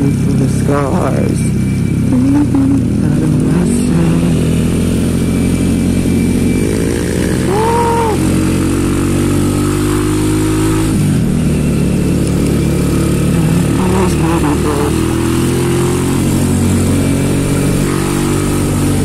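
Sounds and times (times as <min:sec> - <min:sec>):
small motorcycle engine running: 0:00.0 - 0:19.0
wind and road noise: 0:00.0 - 0:19.0
brief tone: 0:01.2 - 0:03.2, 0:05.0 - 0:08.4.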